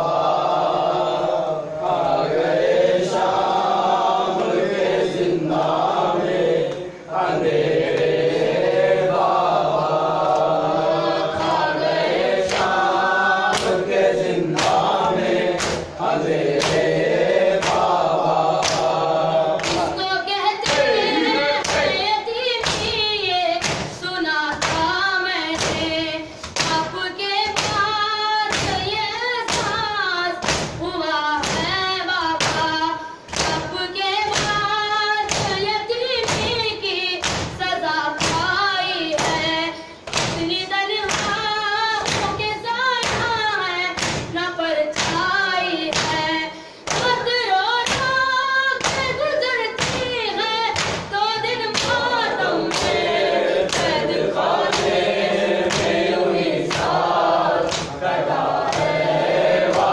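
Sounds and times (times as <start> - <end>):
men chanting in unison: 0.0 - 22.2, 51.4 - 59.9
hands beating chests: 14.5 - 16.9, 17.6 - 20.0, 49.8 - 59.9.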